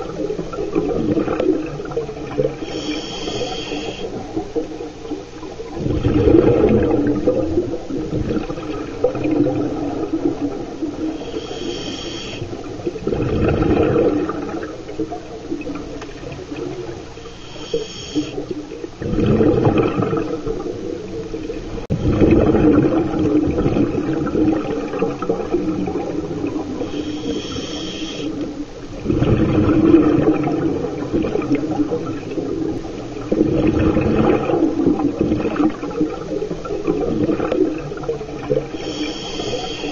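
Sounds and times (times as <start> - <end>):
exhaled bubbles rumbling: 0.0 - 39.9
regulator hissing inhale: 2.6 - 4.2, 11.0 - 12.6, 17.2 - 18.5, 26.7 - 28.4, 38.7 - 39.9.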